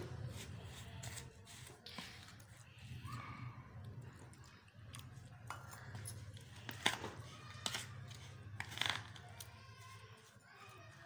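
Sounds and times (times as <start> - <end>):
spoon stirring batter in bowl: 3.6 - 11.0.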